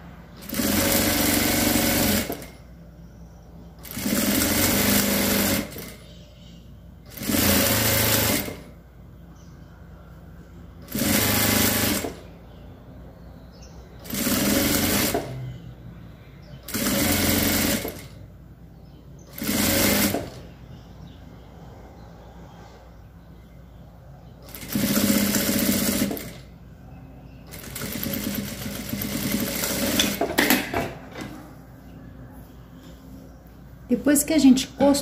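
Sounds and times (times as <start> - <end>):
sewing machine stitching: 0.4 - 2.6, 3.8 - 6.0, 7.1 - 8.7, 10.8 - 12.2, 14.0 - 15.4, 16.7 - 18.2, 19.3 - 20.4, 24.5 - 26.4, 27.5 - 30.6.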